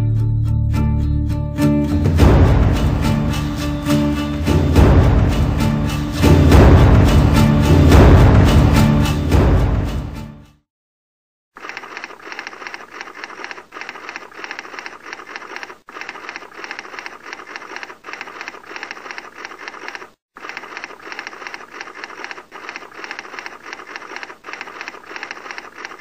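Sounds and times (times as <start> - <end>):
rapid typewriter-like clacking: 11.6 - 26.0.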